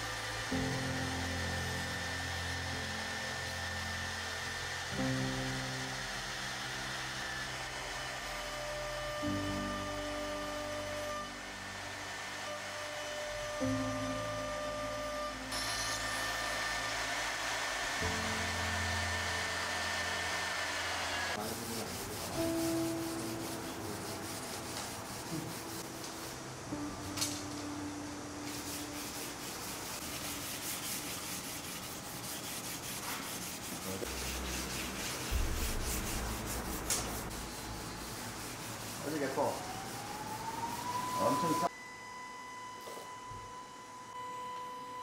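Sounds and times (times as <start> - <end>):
steady whine: 0.0 - 22.9, 23.8 - 45.0
hands rubbing wooden slats: 28.5 - 40.4.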